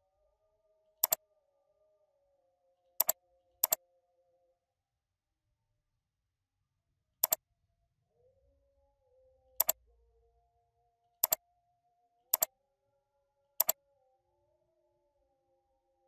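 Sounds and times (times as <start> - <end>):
computer mouse clicks: 3.0 - 3.8, 9.6 - 9.8, 12.3 - 12.5, 13.6 - 13.8.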